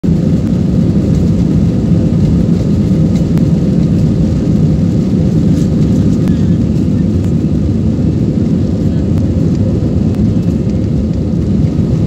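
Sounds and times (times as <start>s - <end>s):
jet engines and wheels rumbling: 0.0s - 12.0s.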